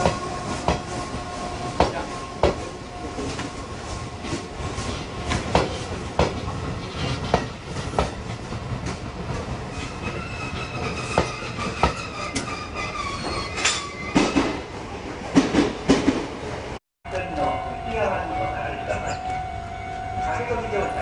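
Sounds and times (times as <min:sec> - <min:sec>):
train wheels clicking over rail joints: 0:04.2 - 0:14.6
high wheel squeal: 0:09.8 - 0:14.4.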